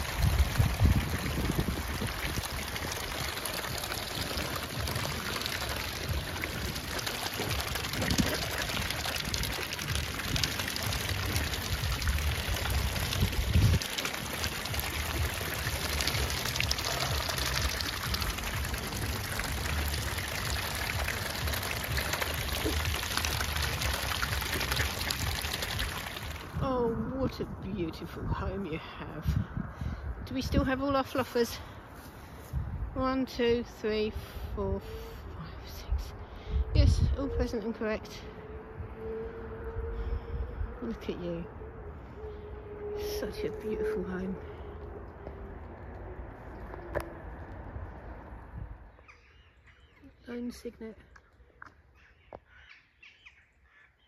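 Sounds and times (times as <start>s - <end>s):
water splashing and sloshing: 0.0s - 28.6s, 36.1s - 50.3s.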